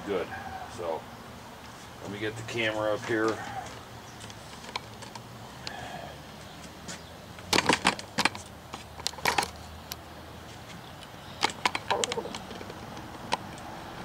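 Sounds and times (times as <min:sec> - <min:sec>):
camera handling clicks and rattles: 0:04.2 - 0:05.3, 0:07.5 - 0:10.0, 0:11.4 - 0:13.7.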